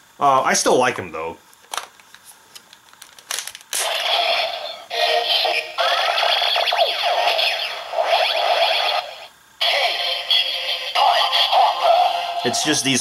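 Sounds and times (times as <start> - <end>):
toy electronic sound effects: 3.8 - 13.0.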